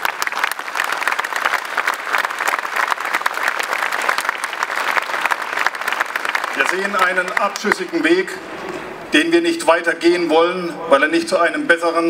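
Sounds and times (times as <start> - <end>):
large crowd applauding: 0.0 - 9.1.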